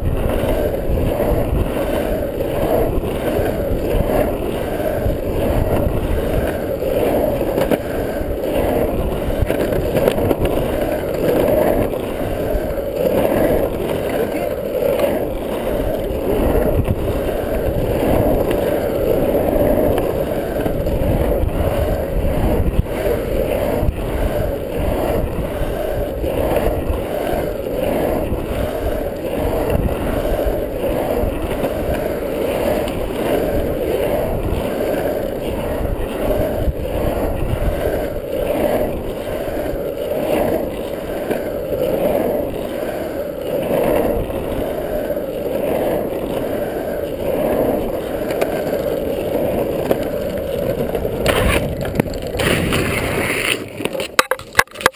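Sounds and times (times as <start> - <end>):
longboard wheels rolling on asphalt: 0.0 - 54.9.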